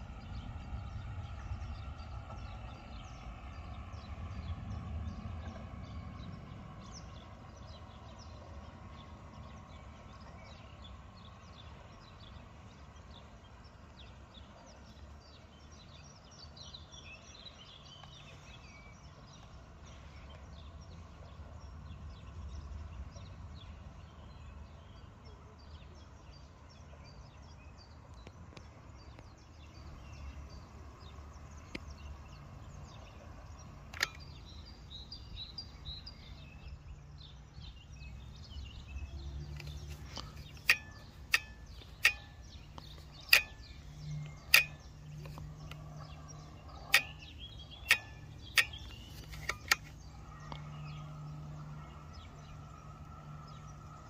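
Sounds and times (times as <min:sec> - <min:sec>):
small birds chirping: 0:06.8 - 0:54.0
low steady hum: 0:28.8 - 0:54.0
sharp clicks: 0:33.8 - 0:34.8, 0:39.4 - 0:50.6.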